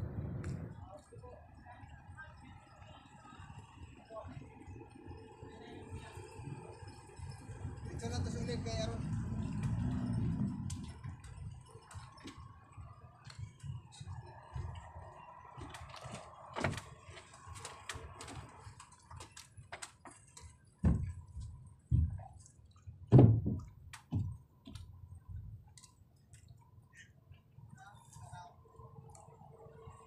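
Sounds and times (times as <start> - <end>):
low rumble: 0.0 - 1.0
footsteps on boat deck: 13.2 - 26.5
small knocks and clicks: 15.6 - 25.0
heavy thumps: 23.1 - 24.4.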